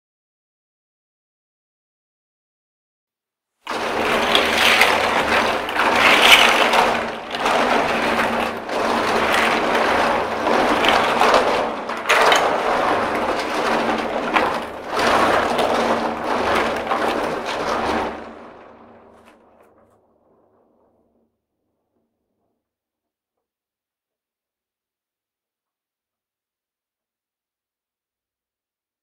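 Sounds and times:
toy blocks clattering in water: 3.7s - 19.8s.

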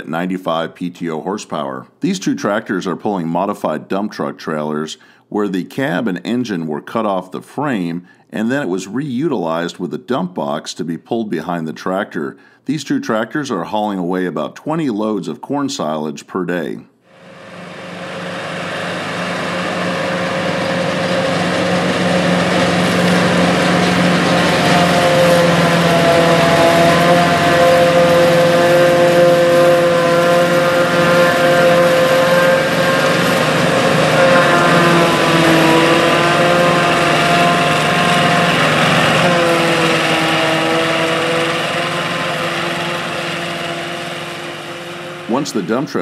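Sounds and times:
forage harvester diesel engine: 17.2s - 46.0s
tractor diesel engine: 17.2s - 46.0s.

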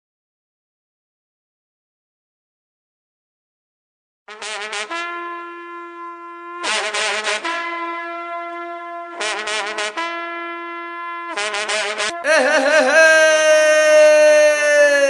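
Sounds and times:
long brass horn blasts: 4.3s - 12.8s.

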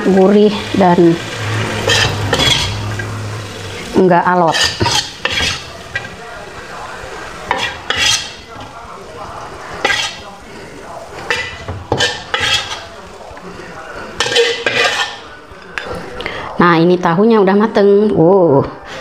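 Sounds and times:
metal spatula scraping a wok: 0.2s - 6.2s, 7.2s - 13.0s, 13.9s - 16.1s.

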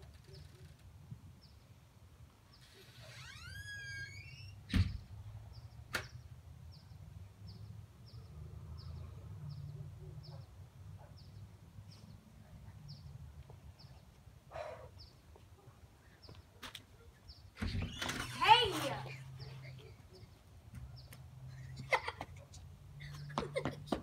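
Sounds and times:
door hinge squeak: 2.8s - 5.0s, 17.6s - 18.4s
door slamming: 4.7s - 5.0s.

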